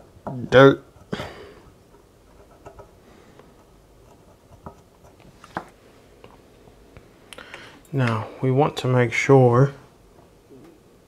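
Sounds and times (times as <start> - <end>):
small clicks and scratches: 1.9 - 5.7.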